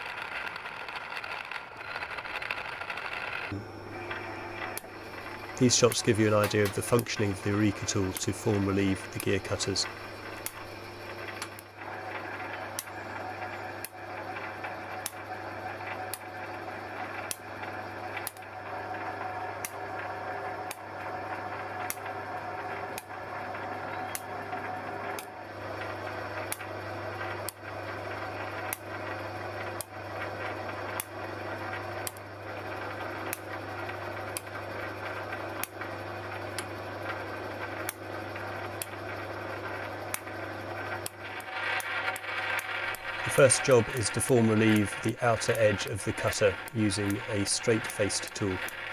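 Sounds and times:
sharp mechanical clicks: 0.0 - 12.9, 38.7 - 48.9
lathe running: 0.0 - 48.9.

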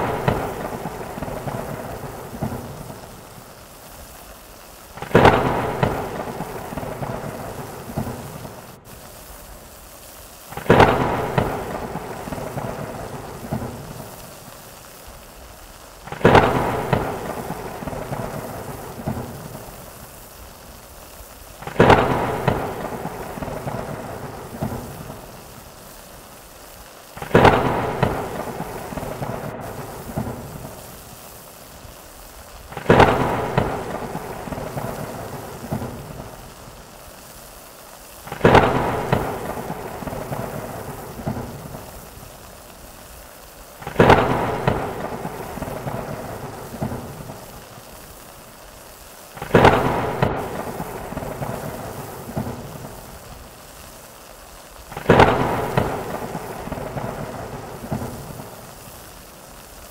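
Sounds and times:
thunder cracks rumbling: 0.0 - 3.3, 5.0 - 8.8, 10.5 - 14.2, 16.1 - 19.8, 21.6 - 25.4, 27.2 - 31.0, 32.7 - 36.6, 38.3 - 42.0, 43.8 - 47.5, 49.4 - 53.0, 54.9 - 58.5
steady rain: 0.0 - 59.9.

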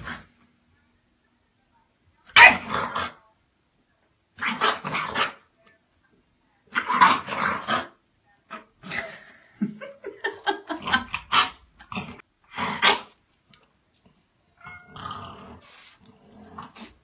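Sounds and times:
dog barking excitedly: 2.4 - 2.7.

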